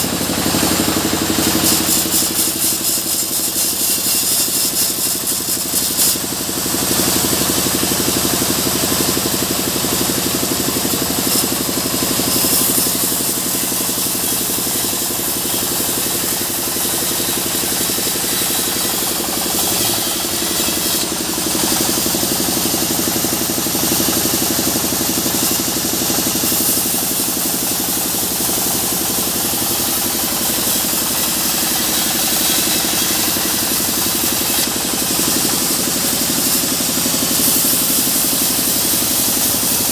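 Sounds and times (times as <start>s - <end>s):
saw blade cutting wood hiss: 0.0s - 39.9s
sawmill machine hum: 0.0s - 39.9s.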